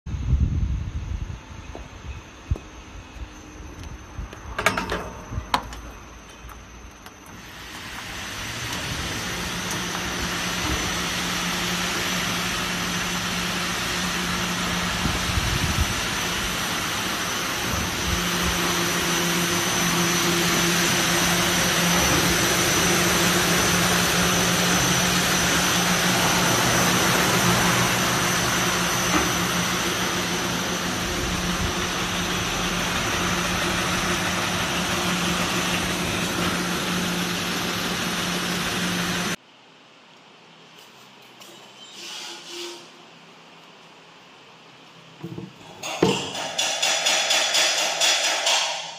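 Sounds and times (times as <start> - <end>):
sanding machine motor hum: 7.3 - 39.4
sanding brushes hissing: 7.4 - 39.4.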